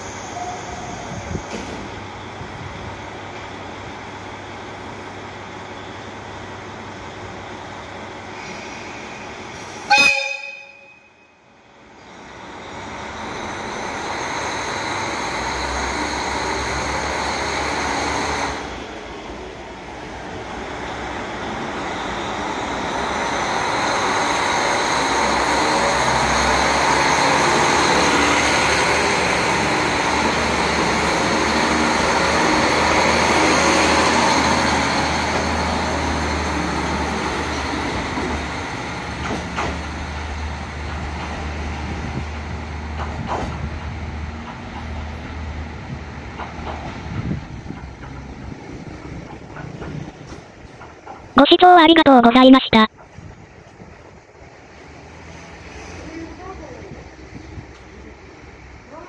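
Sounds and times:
diesel railcar engine and wheels: 0.0 - 59.0
train horn toot: 9.9 - 11.4.

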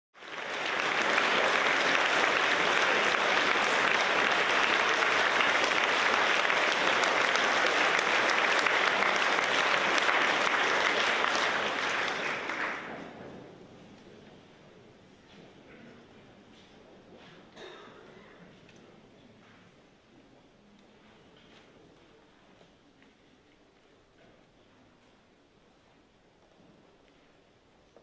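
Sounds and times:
audience applauding: 0.2 - 13.0.

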